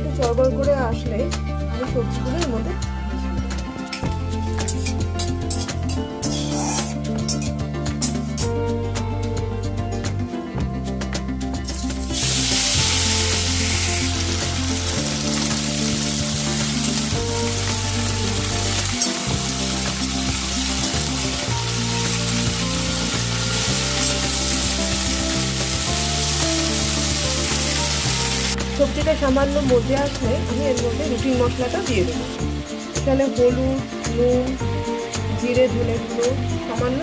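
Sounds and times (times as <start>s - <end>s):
vegetables sizzling in hot oil: 11.6s - 34.1s.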